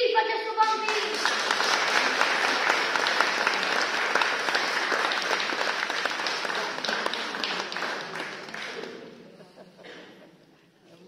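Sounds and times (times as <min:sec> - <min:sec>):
crowd applauding: 0:00.6 - 0:09.4.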